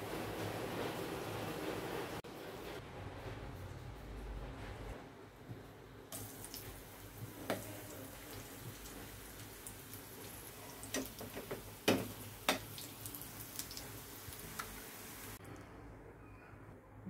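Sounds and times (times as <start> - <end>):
food sizzling in hot oil: 6.1 - 15.4.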